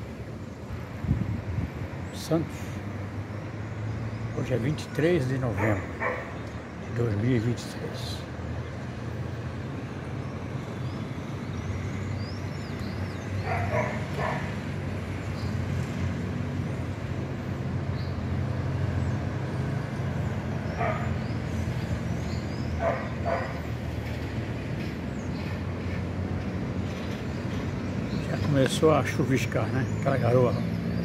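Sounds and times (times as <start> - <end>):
distant city traffic rumble: 0.0 - 31.0
small birds chirping: 0.0 - 31.0
dog barking: 5.6 - 6.4, 13.4 - 14.5, 20.8 - 21.2, 22.8 - 23.6.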